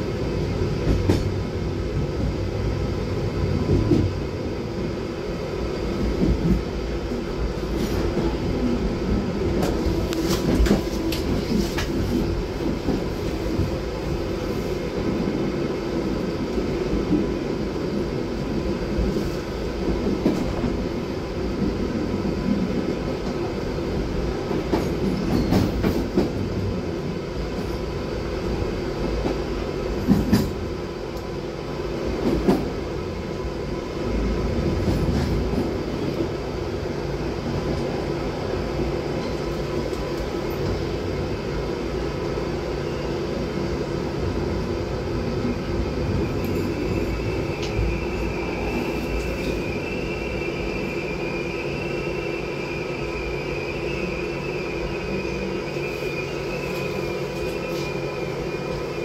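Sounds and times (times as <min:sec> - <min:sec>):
train rumbling in tunnel: 0:00.0 - 0:59.0
high brake squeal: 0:46.3 - 0:59.0.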